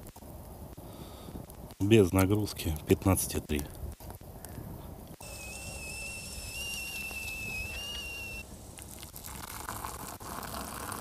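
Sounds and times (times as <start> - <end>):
whistling kettle: 5.2 - 8.5.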